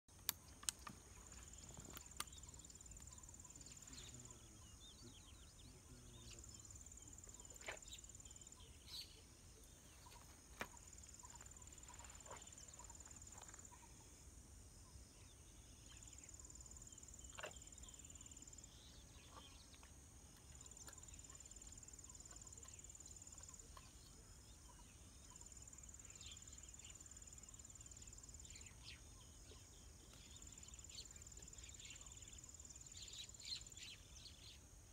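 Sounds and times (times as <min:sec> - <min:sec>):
faint clicks: 0:00.2 - 0:01.0
insect buzzing chorus: 0:00.2 - 0:34.9.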